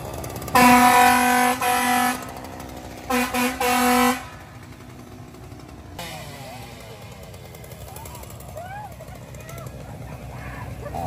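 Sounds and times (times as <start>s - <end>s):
stuttering air horn blasts: 0.5s - 4.7s, 6.0s - 6.6s.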